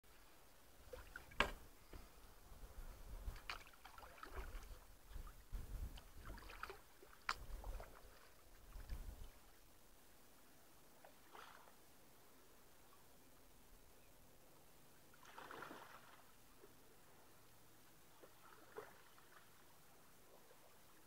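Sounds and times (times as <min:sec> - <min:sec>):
knocks and scrapes of canoe handling: 0:00.9 - 0:03.7.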